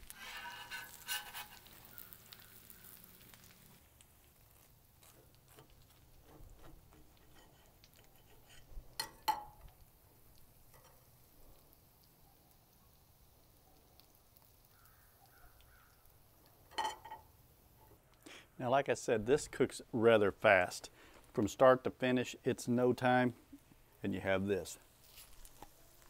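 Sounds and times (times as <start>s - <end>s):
burger patties sizzling on griddle: 0.0s - 17.9s, 23.4s - 26.0s.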